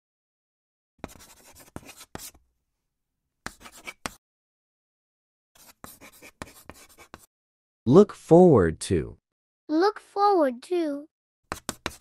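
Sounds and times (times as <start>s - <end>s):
marker scribbling on board: 1.0s - 2.4s, 3.5s - 4.2s, 5.6s - 7.3s, 11.5s - 12.0s.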